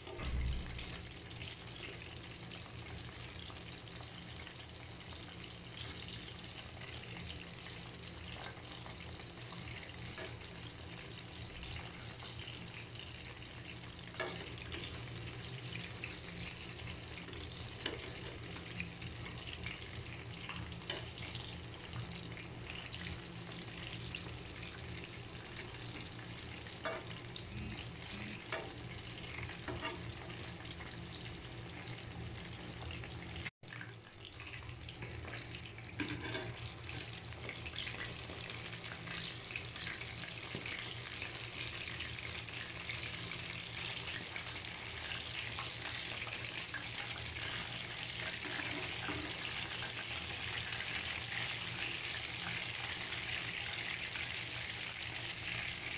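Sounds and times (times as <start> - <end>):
wings sizzling in hot oil: 0.0 - 55.9
tongs clicking against pan: 26.8 - 27.2.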